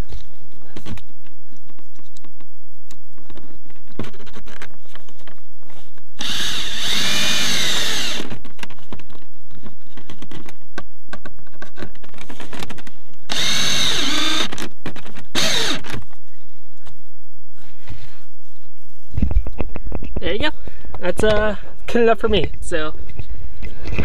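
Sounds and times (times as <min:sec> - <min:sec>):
cordless drill whining: 0:06.2 - 0:08.3, 0:13.3 - 0:14.6, 0:15.3 - 0:16.0.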